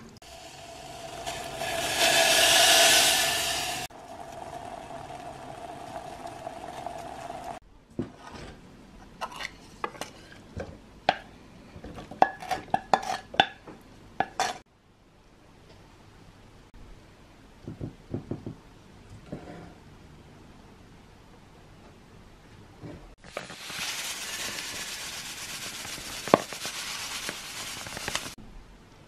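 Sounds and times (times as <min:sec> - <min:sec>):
steady hiss: 0:00.0 - 0:07.6, 0:23.2 - 0:28.4.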